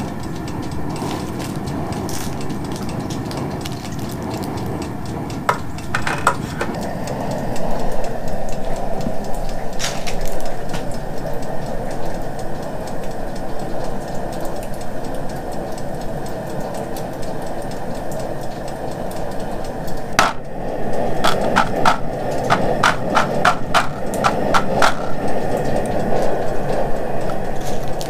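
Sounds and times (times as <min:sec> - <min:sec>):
sharp clicks and knocks: 0:00.0 - 0:07.3, 0:18.5 - 0:20.5, 0:21.2 - 0:28.0
gas burner flame rushing: 0:00.0 - 0:28.0.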